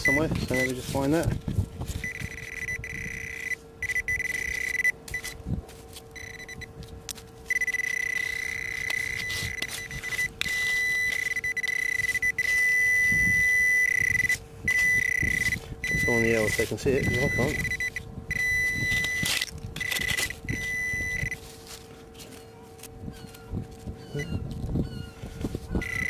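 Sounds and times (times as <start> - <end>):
metal detector beep tone: 0.0 - 0.8, 1.9 - 5.4, 6.2 - 6.7, 7.5 - 21.4, 25.8 - 26.0.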